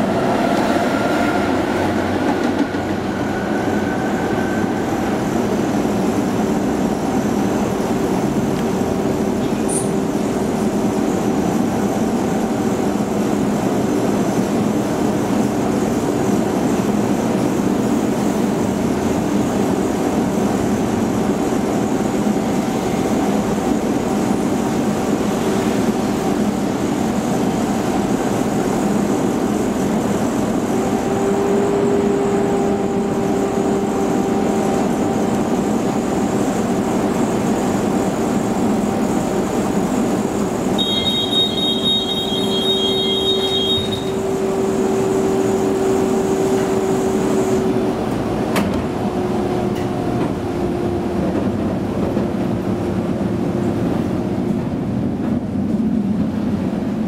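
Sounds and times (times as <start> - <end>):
tram motor whine: 0.0 - 57.0
tram wheels rumbling on track: 0.0 - 57.0
brief high squeak: 9.5 - 10.0, 40.8 - 44.2.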